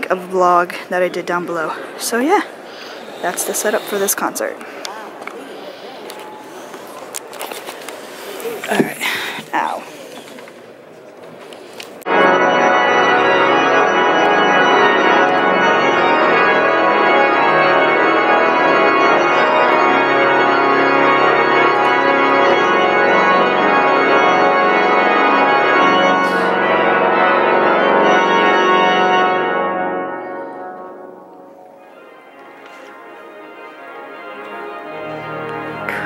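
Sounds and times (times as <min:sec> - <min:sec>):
pipe organ chords: 0:12.1 - 0:36.0.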